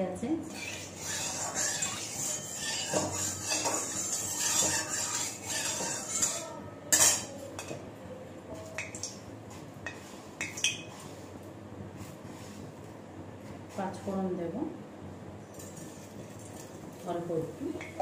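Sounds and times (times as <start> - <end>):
spatula scraping a pan: 0.5 - 7.3.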